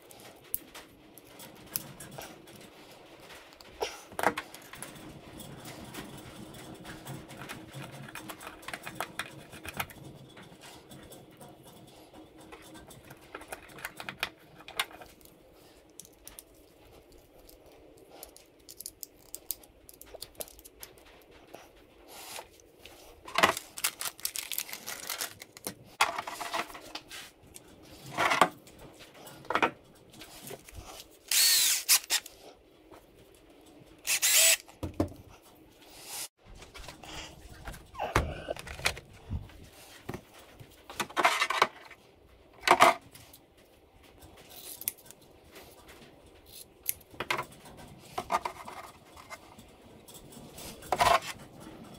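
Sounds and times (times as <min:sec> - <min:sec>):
small parts rattling on workbench: 0:23.2 - 0:32.3, 0:40.0 - 0:43.2.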